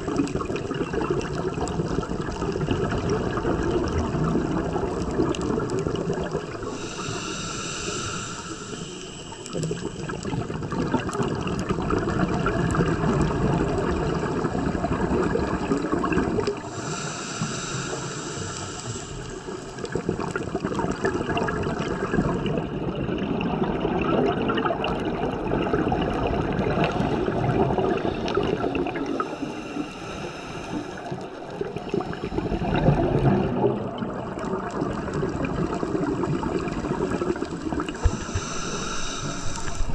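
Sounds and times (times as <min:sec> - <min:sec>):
bubbling exhalation underwater: 0:00.0 - 0:06.8, 0:09.5 - 0:16.7, 0:19.8 - 0:29.6, 0:31.0 - 0:39.9
scuba regulator hissing inhalation: 0:06.3 - 0:10.6, 0:16.5 - 0:20.3, 0:28.0 - 0:33.5, 0:37.4 - 0:39.9.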